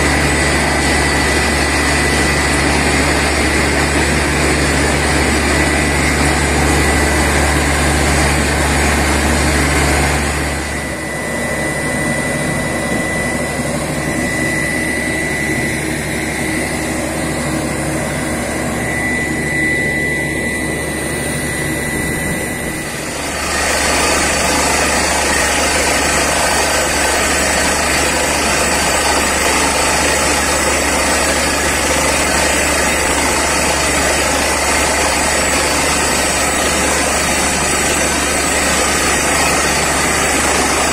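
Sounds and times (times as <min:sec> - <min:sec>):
drilling rig engine drone: 0:00.0 - 0:40.9
thin steady whine: 0:00.0 - 0:40.9.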